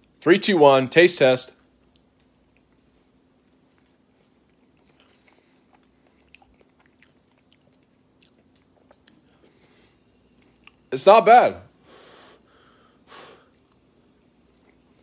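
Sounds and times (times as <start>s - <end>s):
faint chewing: 1.6s - 10.9s, 13.4s - 15.0s.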